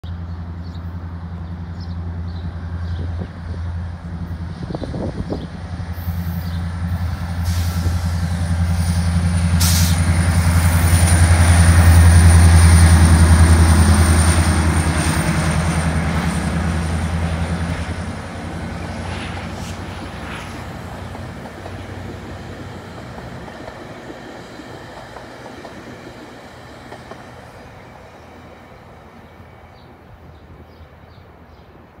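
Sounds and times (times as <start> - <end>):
diesel locomotive drone: 0.0 - 32.0
train wheels clacking: 19.0 - 27.5.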